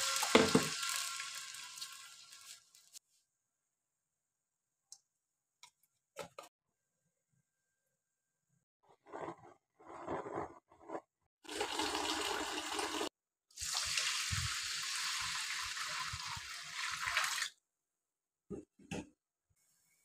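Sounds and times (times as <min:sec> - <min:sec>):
water pouring onto rice in a pot: 0:00.0 - 0:03.0.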